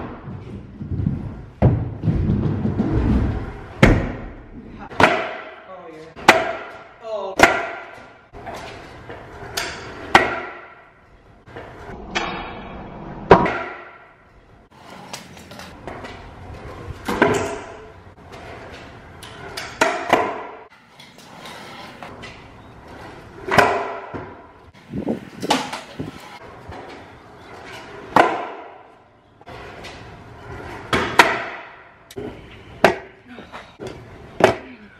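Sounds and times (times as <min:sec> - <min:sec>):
wheels rolling on concrete: 0:00.0 - 0:03.9, 0:08.0 - 0:10.2, 0:14.4 - 0:31.2
scooter landing clacks and bangs: 0:00.0 - 0:05.6, 0:06.2 - 0:10.9, 0:13.3 - 0:14.2, 0:15.1 - 0:20.7, 0:22.1 - 0:27.0, 0:27.6 - 0:28.9, 0:29.7 - 0:33.2.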